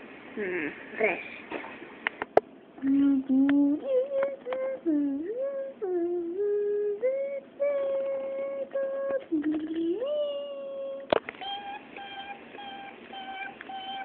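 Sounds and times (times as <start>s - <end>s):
person humming a tune: 2.8s - 14.0s.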